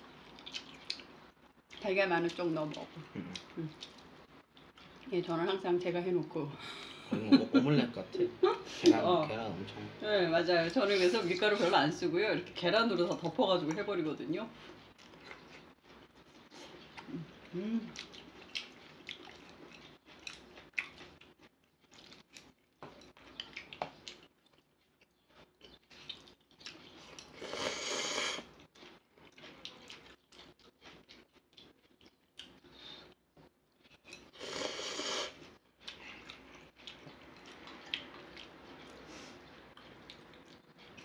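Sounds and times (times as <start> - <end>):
chewing: 0.1 - 5.2, 14.6 - 34.7, 35.4 - 41.0
slurping: 34.2 - 35.4.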